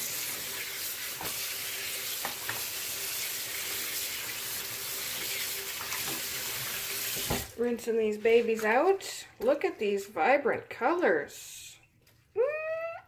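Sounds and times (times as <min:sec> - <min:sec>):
tap running into sink: 0:01.1 - 0:01.5, 0:02.2 - 0:02.7, 0:05.8 - 0:07.5.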